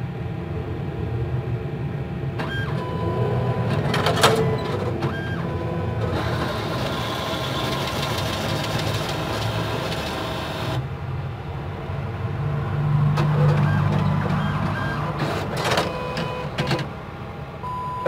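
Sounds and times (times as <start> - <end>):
cash dispenser mechanism running: 2.4 - 10.8, 13.2 - 17.0.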